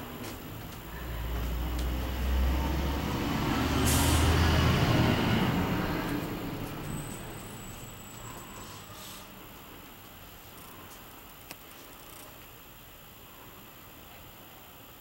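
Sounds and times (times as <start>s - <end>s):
heavy vehicle engine rumble: 0.0s - 9.8s
air-brake hiss: 1.0s - 9.5s.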